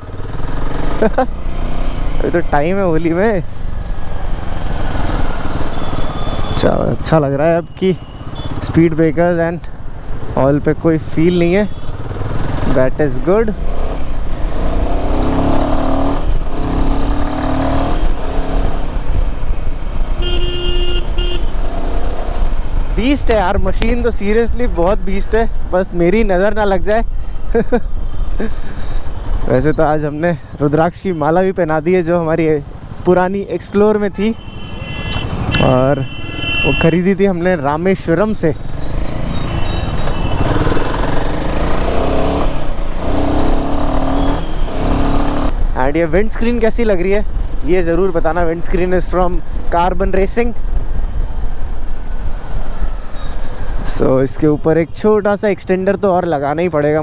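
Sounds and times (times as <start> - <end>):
vehicle horn: 20.2 - 21.6, 34.4 - 37.0
low wind rumble: 21.0 - 30.2.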